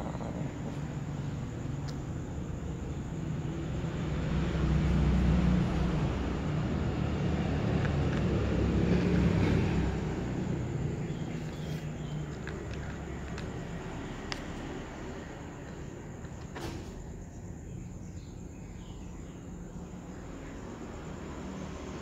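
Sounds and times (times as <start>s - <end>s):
cat crunching dry kibble: 12.2s - 13.8s.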